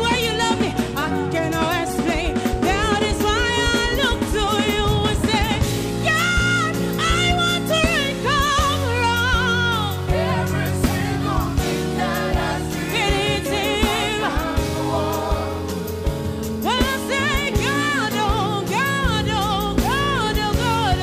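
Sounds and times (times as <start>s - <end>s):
band with drums and keyboards: 0.0s - 21.0s
woman singing with vibrato: 16.6s - 21.0s.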